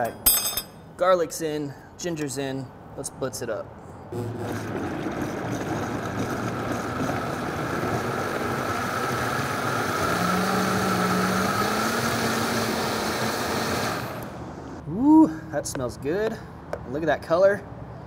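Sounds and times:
blender running: 4.2 - 14.4.

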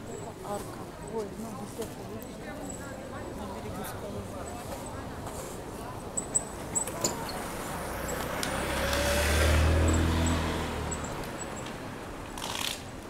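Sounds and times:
vehicle engine hum passing: 7.4 - 12.8.

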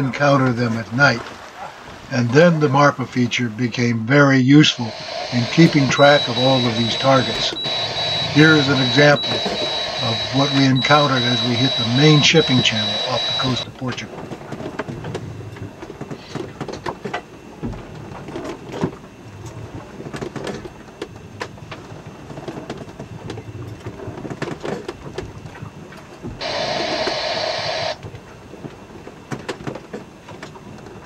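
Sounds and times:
boat interior background noise: 0.0 - 31.0
loud hiss-like burst: 26.4 - 28.0.

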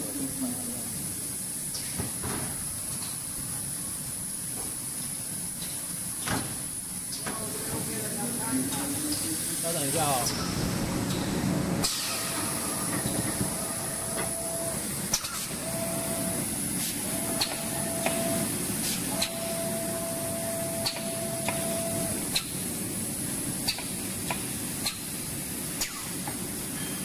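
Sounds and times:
machine mechanical hiss and hum: 0.0 - 27.0
thin steady whine: 12.0 - 22.2.

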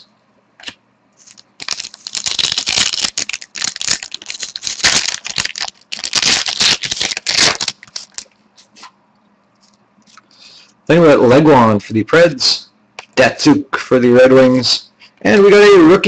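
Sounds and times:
foil wrapper crinkling: 0.6 - 8.3.

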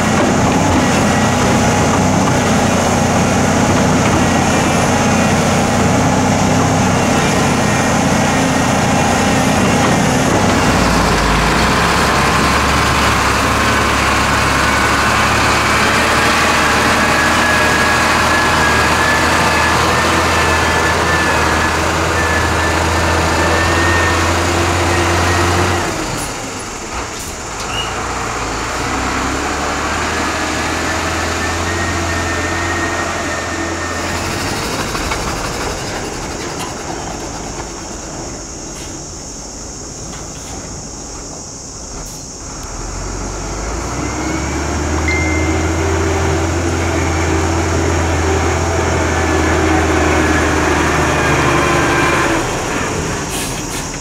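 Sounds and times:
heavy diesel engines running: 0.0 - 54.0.

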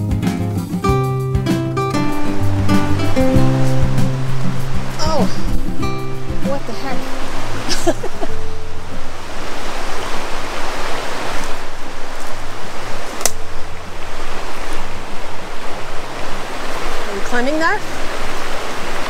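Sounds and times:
river rushing over rocks: 1.9 - 19.0
sharp click: 13.2 - 13.4.

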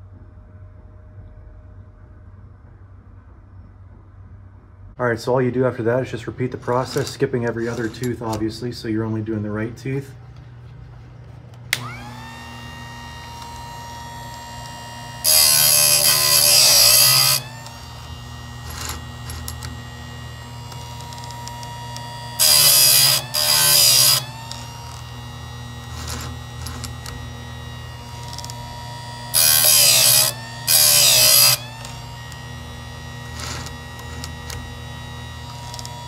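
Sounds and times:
sharpener motor humming: 6.5 - 8.6, 11.5 - 36.0
grinding wheel on chain teeth: 6.7 - 8.3, 14.3 - 36.0.

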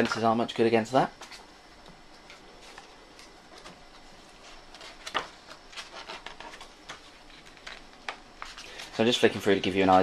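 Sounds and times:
book pages turning: 2.6 - 9.3.

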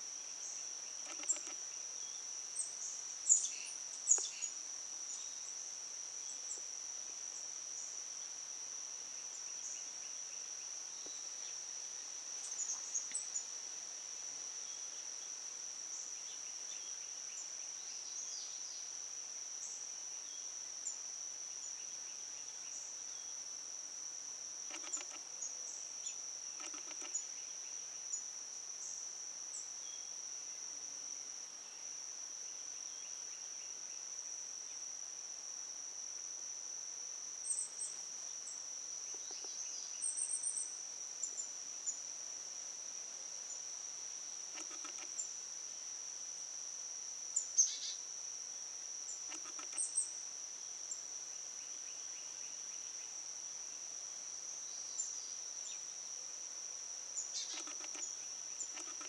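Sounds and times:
insects droning: 0.0 - 59.0
small birds chirping: 0.4 - 2.2, 57.2 - 59.0.

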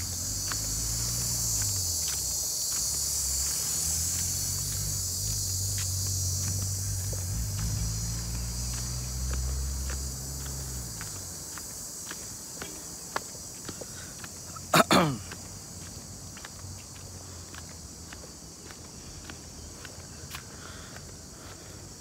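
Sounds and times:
low engine hum: 0.0 - 11.8
footsteps clicking on ground: 0.0 - 21.7
crickets shrilling: 0.0 - 22.0.

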